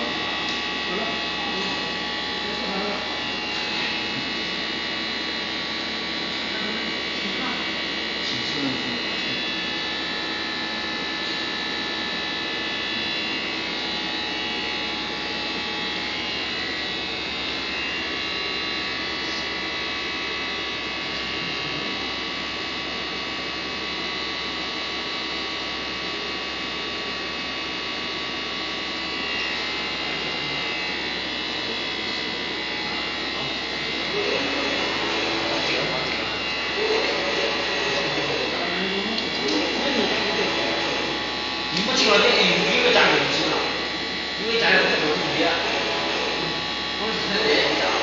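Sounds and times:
printer electric hum: 0:00.0 - 0:48.0
high whining tones: 0:29.0 - 0:48.0.

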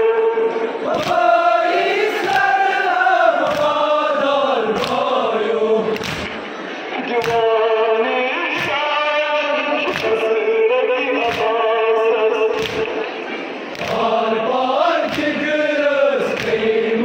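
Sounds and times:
crowd of men chanting: 0:00.6 - 0:06.5, 0:13.7 - 0:17.0.

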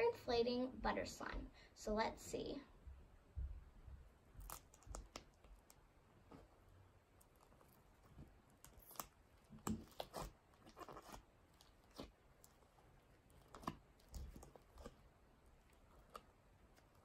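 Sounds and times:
slime squishing when kneaded: 0:04.4 - 0:17.0.

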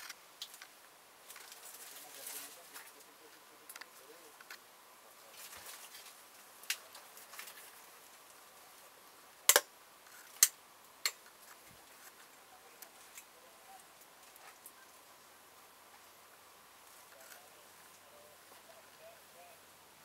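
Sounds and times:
faint steady hiss: 0:00.0 - 0:20.0
sharp clicks and knocks: 0:09.5 - 0:09.7.

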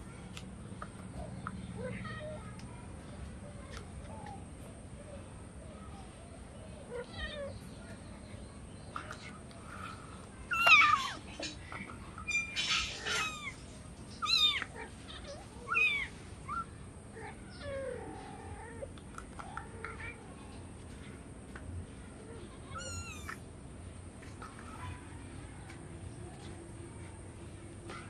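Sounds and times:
kitten meowing: 0:12.3 - 0:13.6, 0:14.2 - 0:14.8, 0:15.7 - 0:16.1, 0:22.8 - 0:23.4.

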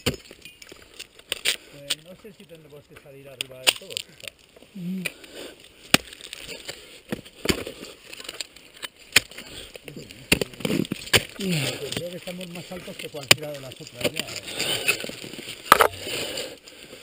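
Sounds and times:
ice axe striking ice: 0:00.0 - 0:02.0, 0:03.4 - 0:04.2, 0:05.9 - 0:09.5, 0:10.2 - 0:16.2
ice crunching and breaking: 0:00.0 - 0:17.0.

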